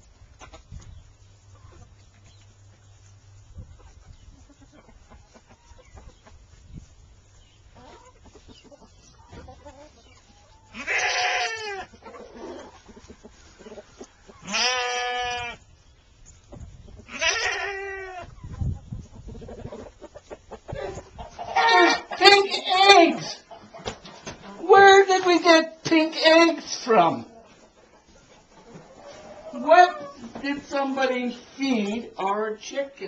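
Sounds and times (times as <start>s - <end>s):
chickens pecking and scratching: 0.0s - 32.9s
farm animal loud calls: 10.7s - 12.6s, 14.4s - 15.6s, 17.1s - 18.3s, 20.8s - 23.3s.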